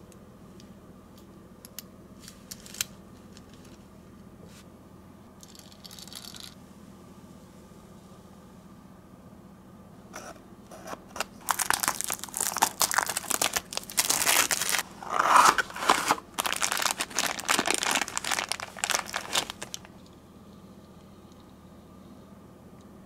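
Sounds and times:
plastic bag crinkling: 11.2 - 20.0.

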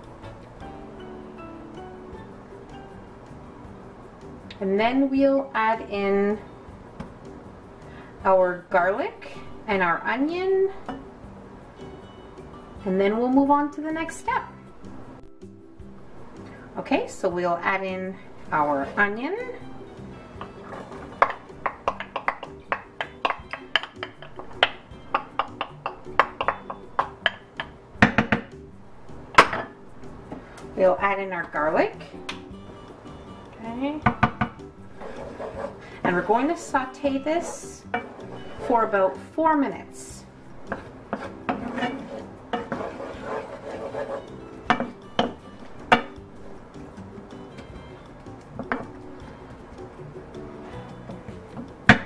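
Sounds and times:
soft background music: 0.0 - 52.0
wooden spoon scraping a pan: 18.4 - 19.2, 20.4 - 21.4, 34.9 - 39.0, 40.7 - 44.3.

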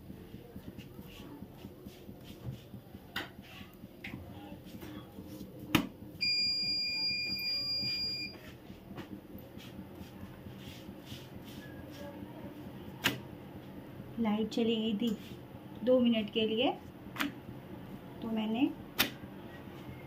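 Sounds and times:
high-pitched electronic beep: 6.2 - 8.4.

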